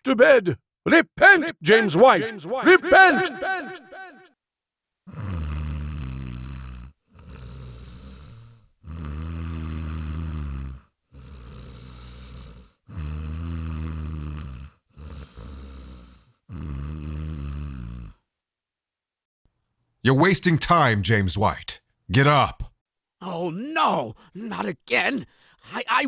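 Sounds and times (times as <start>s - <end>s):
man snoring: 5.0s - 18.3s
quiet breaths: 5.2s - 18.3s, 25.3s - 25.8s.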